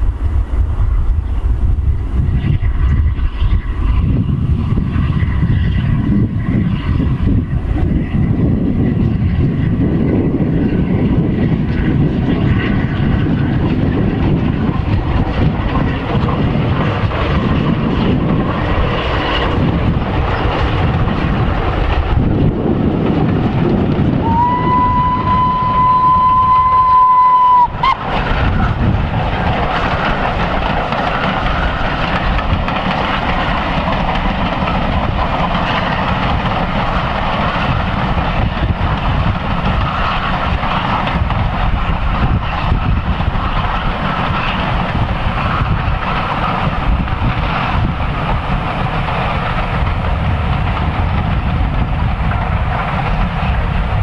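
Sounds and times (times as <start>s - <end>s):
steam locomotives rumbling past: 0.0s - 54.0s
steam whistle: 24.2s - 28.0s.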